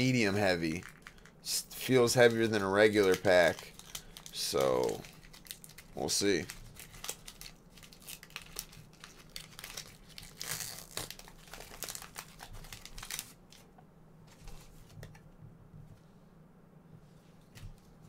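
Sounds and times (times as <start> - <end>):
foil wrapper crinkling and tearing: 0.0 - 13.6.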